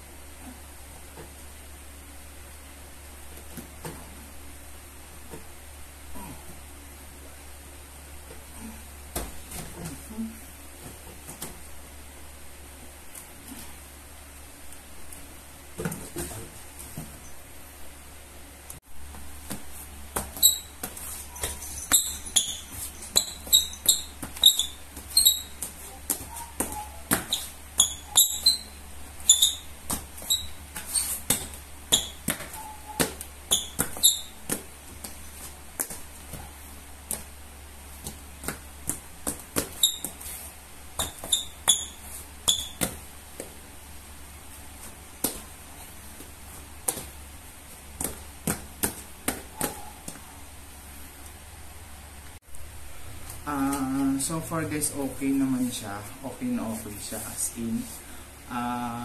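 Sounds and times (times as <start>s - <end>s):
shoe soles squeaking on floor: 19.1s - 37.3s, 38.0s - 43.6s, 44.5s - 50.4s.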